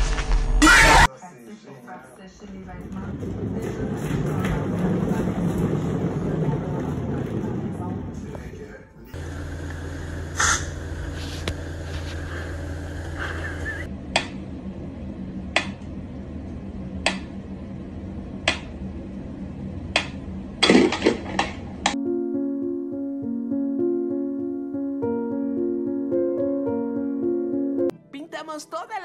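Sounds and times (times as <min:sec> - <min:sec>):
steady low hum: 0:02.4 - 0:24.0.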